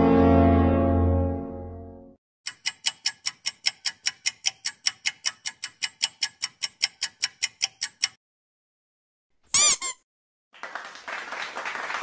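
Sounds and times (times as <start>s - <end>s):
clock ticking fast: 2.5s - 8.2s.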